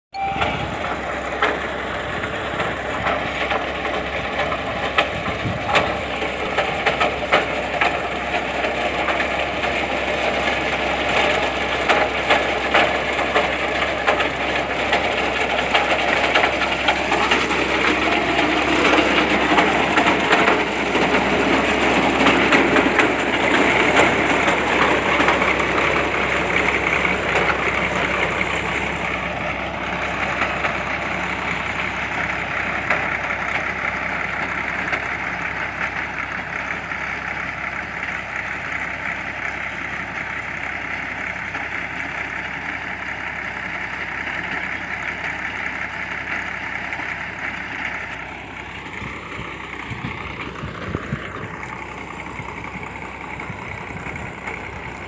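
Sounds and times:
drilling rig engine din: 0.2 - 55.0
knocks and clatter: 2.6 - 28.8.

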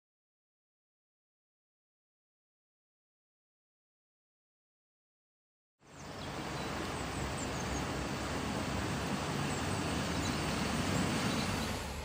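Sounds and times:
low engine rumble: 5.9 - 12.0
falling rain: 6.0 - 12.0
water washing: 6.3 - 12.0.

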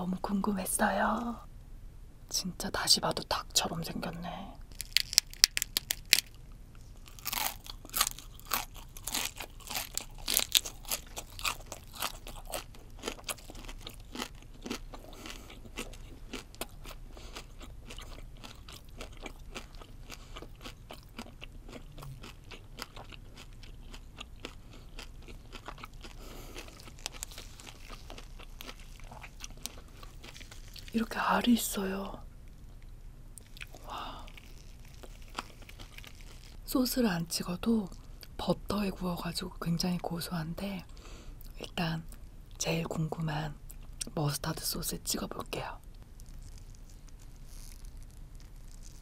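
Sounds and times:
crunching and chewing food: 4.6 - 38.4, 45.2 - 49.0.

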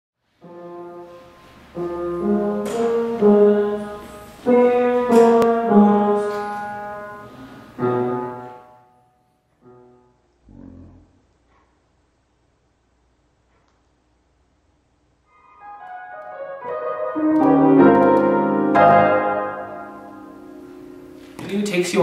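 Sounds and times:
piano chords ringing: 0.3 - 10.3, 15.2 - 22.0.

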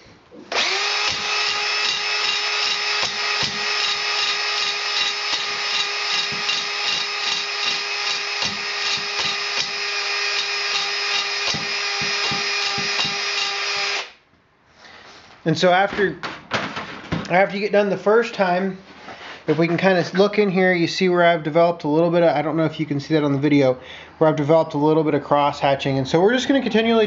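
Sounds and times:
cordless drill running: 0.4 - 14.2
hone knocking and rattling: 15.9 - 17.3.

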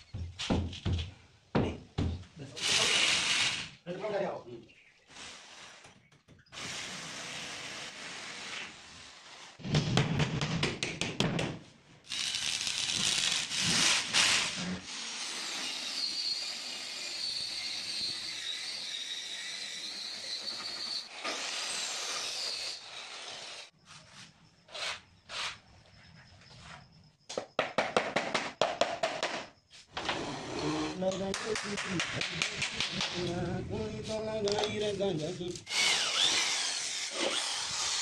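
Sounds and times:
circular saw cutting plywood: 12.1 - 23.7, 35.7 - 38.0.

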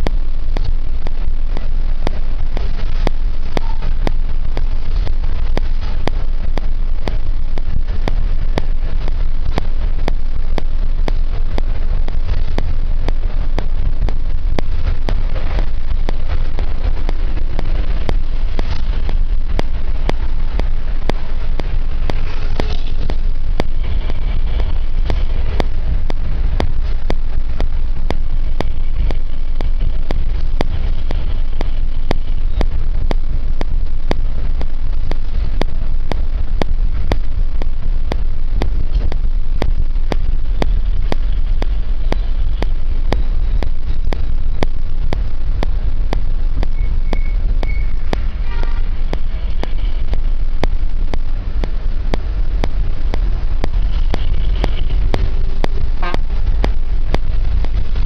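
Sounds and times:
rapid regular clicking: 0.0 - 58.0
vehicle engine and road rumble: 0.0 - 58.0.

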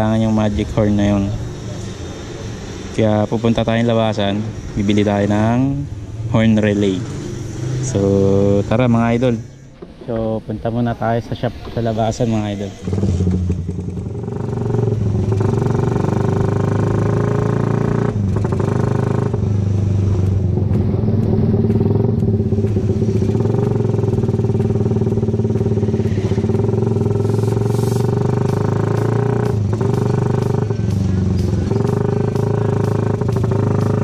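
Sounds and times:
motorcycle engine pulling away: 12.5 - 34.0.

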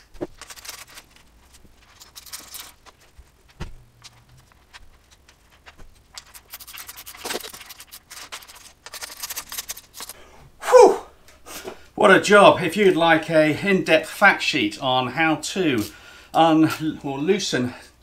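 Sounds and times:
small metal clicks and scrapes: 0.2 - 10.2.

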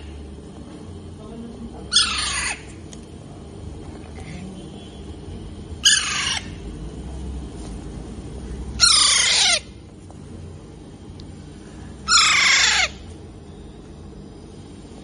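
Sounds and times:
parakeets squawking harshly: 1.9 - 2.8, 5.8 - 6.6, 8.8 - 9.8, 12.0 - 13.1.

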